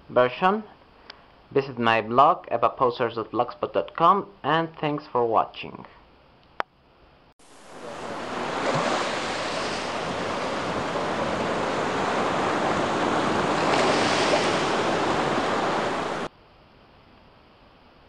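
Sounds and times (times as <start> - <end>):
steady rushing noise: 7.4 - 16.3.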